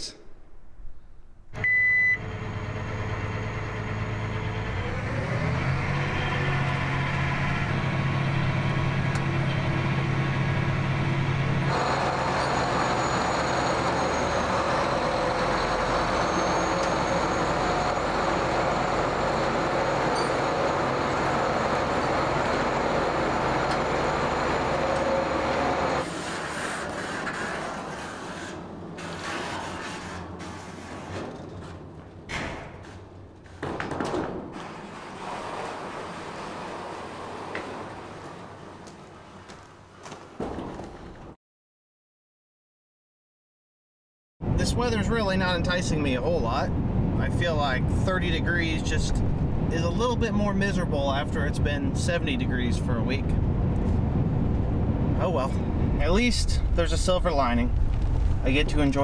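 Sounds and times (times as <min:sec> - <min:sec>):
short high beep: 0:01.6 - 0:02.3
tractor engine running: 0:05.9 - 0:29.1.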